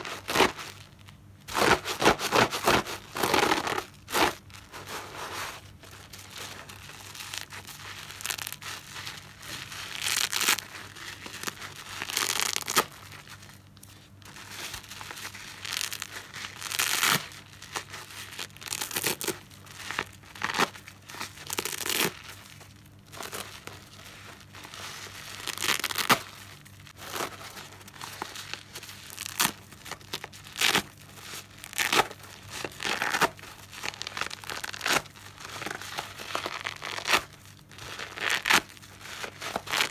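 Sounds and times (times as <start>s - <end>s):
wet sponge tearing: 6.4s - 13.3s, 14.4s - 22.4s, 23.1s - 39.9s.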